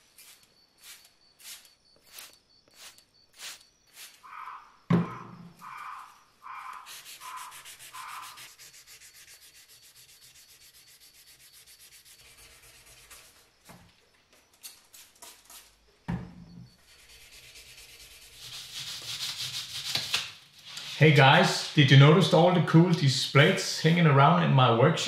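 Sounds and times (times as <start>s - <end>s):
thump: 4.9s - 5.5s
sandpaper rasping on metal: 6.8s - 13.4s, 16.9s - 21.0s.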